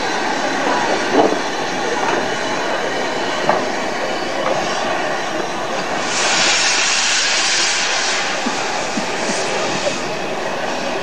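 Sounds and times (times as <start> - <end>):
steam locomotive running: 0.0 - 11.0
loud hiss of steam: 3.2 - 11.0.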